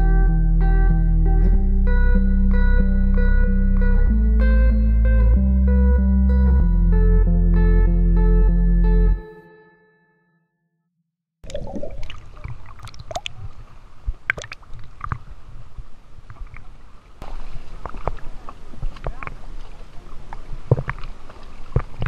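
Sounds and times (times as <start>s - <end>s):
water sloshing and splashing: 11.4s - 22.0s.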